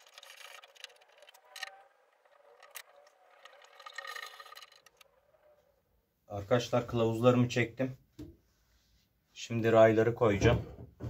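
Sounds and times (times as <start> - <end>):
faint metallic scraping: 0.0 - 6.9.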